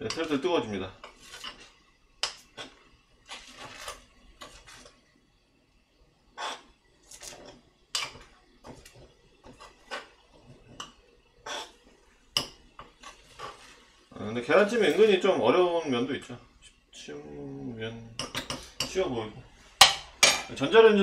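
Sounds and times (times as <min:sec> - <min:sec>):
utensil scraping an earthenware pot: 0:00.0 - 0:05.0, 0:06.3 - 0:14.1.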